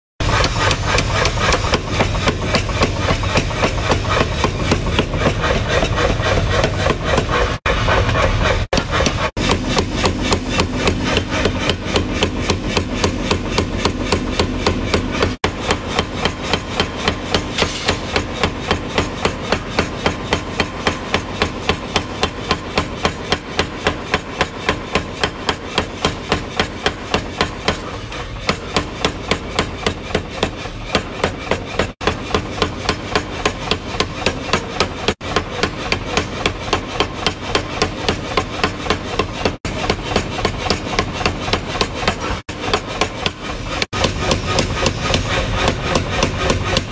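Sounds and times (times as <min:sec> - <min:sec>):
power hammer pounding steel: 0:00.2 - 0:46.9.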